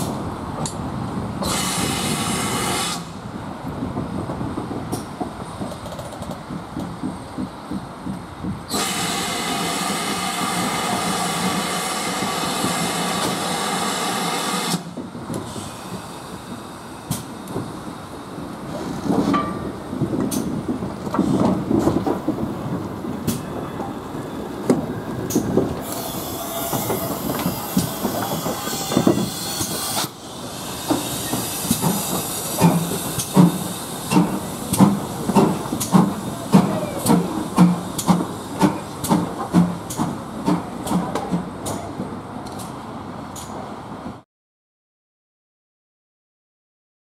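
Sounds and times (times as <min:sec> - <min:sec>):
loud hiss of steam: 0:01.3 - 0:03.4, 0:08.7 - 0:22.0, 0:25.2 - 0:41.4
steam locomotive exhaust chuffs: 0:01.4 - 0:03.2, 0:04.9 - 0:41.9.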